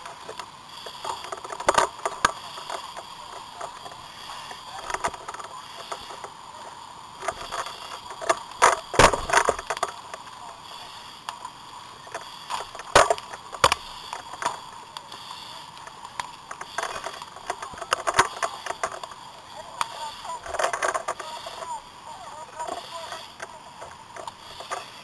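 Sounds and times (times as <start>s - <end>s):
steady hiss: 0.0s - 25.0s
knocks thumps and clatter: 8.6s - 9.8s.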